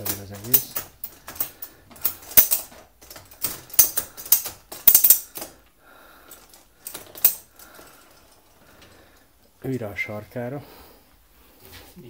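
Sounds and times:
folding table frame rattling: 0:00.0 - 0:05.6, 0:06.3 - 0:09.2.

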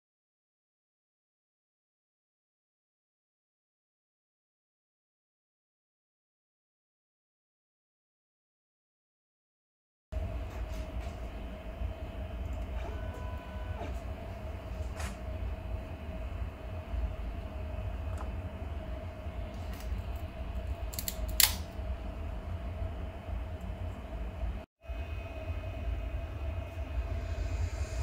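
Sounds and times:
printer fans humming: 0:10.2 - 0:27.6
low rumble: 0:10.2 - 0:28.0
short faint tone: 0:12.5 - 0:15.2.

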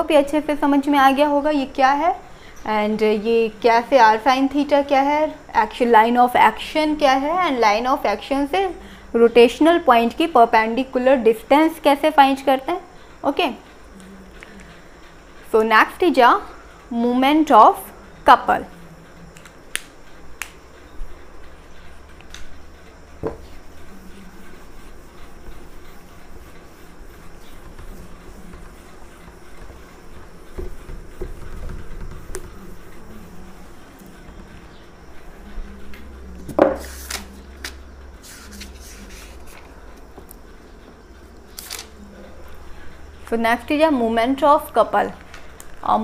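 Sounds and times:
faint room hum: 0:00.0 - 0:46.0
knock: 0:23.2 - 0:23.4
rubbing strokes on whiteboard: 0:23.2 - 0:36.0, 0:36.8 - 0:39.8.

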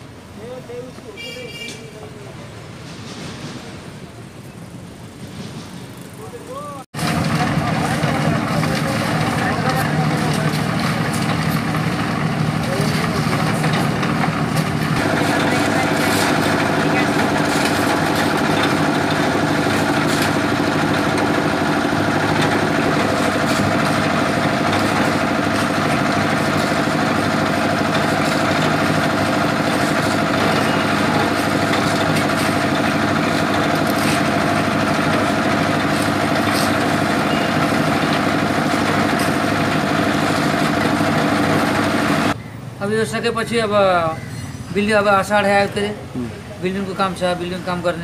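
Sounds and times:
concrete mixer engine droning: 0:06.2 - 0:42.4.

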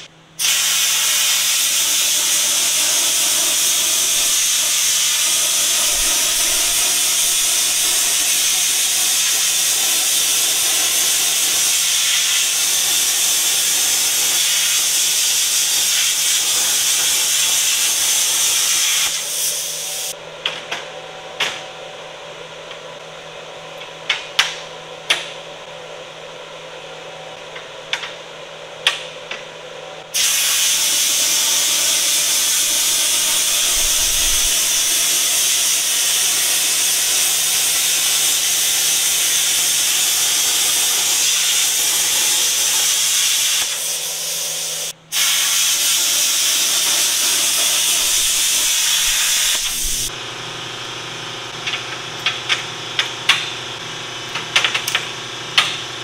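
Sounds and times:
welding arc hissing: 0:00.0 - 0:20.2, 0:30.1 - 0:50.2.

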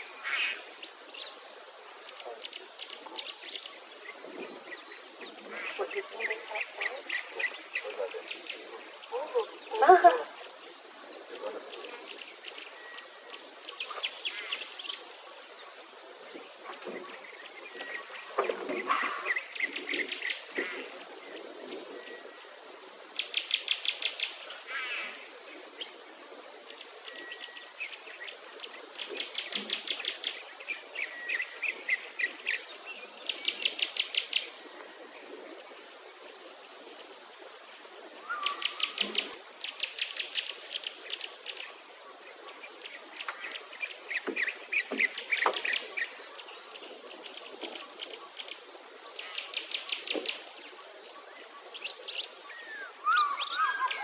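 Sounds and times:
birds singing fast trills: 0:51.1 - 0:54.0.

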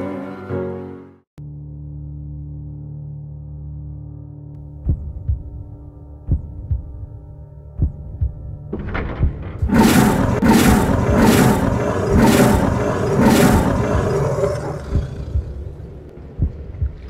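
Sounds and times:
lion roaring: 0:09.7 - 0:16.0.

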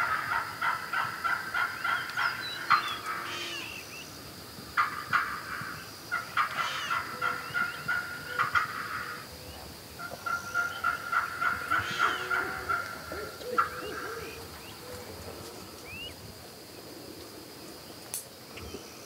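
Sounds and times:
turkey gobbling: 0:00.0 - 0:04.0, 0:04.7 - 0:15.5
lower bird calls: 0:00.0 - 0:04.2, 0:04.8 - 0:16.2.

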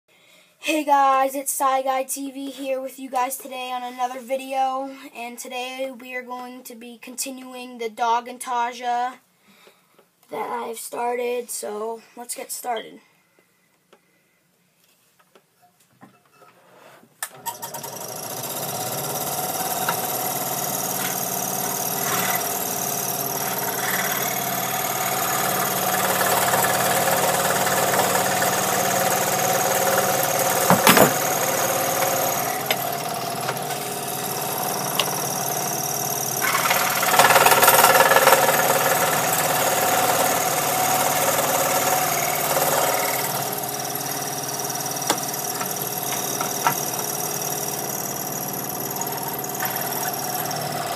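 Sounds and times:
scroll saw cutting wood: 0:17.3 - 0:50.9.

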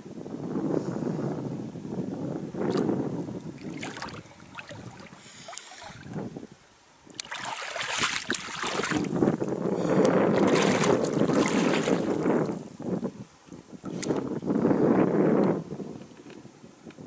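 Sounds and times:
wind rumble on microphone: 0:00.0 - 0:17.0
splashing water by hand: 0:02.7 - 0:02.9, 0:03.5 - 0:06.2, 0:07.1 - 0:12.6, 0:13.8 - 0:14.2
water sloshing and dripping: 0:02.7 - 0:06.3, 0:07.1 - 0:09.6, 0:10.3 - 0:12.6.

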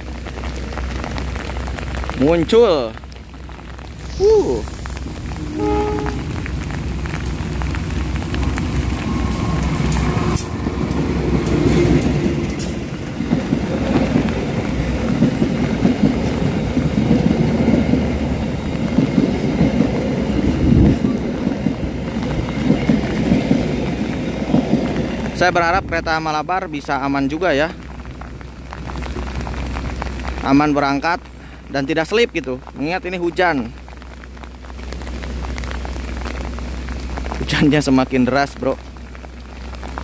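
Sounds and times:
heavy rain: 0:00.0 - 0:40.0
locomotive rumble: 0:00.0 - 0:40.0
train wheels clattering on rails: 0:06.0 - 0:25.5.

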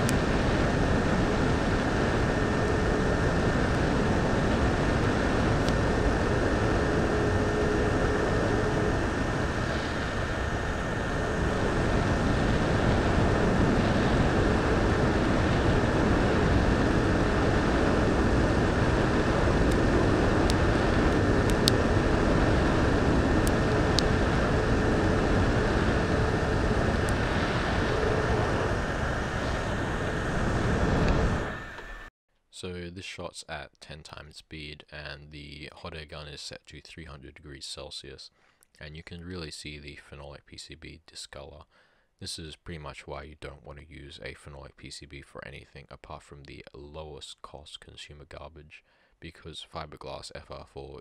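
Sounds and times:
hot air gun blowing: 0:00.0 - 0:32.1
faint fan whine: 0:00.0 - 0:51.0.

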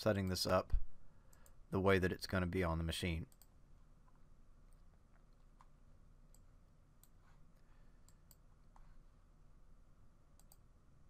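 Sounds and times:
computer mouse clicks: 0:08.0 - 0:08.9, 0:10.4 - 0:10.6.

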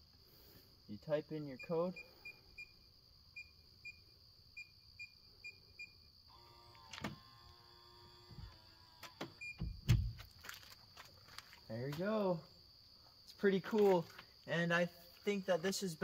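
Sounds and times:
lock motor whirring: 0:06.3 - 0:09.8
door thumping open: 0:08.2 - 0:10.3.

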